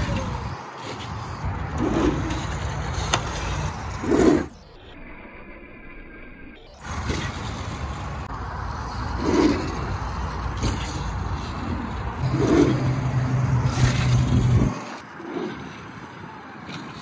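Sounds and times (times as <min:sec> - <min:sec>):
electric dirt bike drivetrain: 0:00.0 - 0:17.0
wind rumble on microphone: 0:06.8 - 0:17.0.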